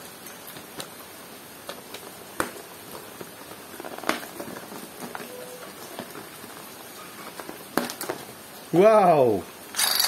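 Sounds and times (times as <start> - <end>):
packaging handling rustle: 1.6 - 8.3.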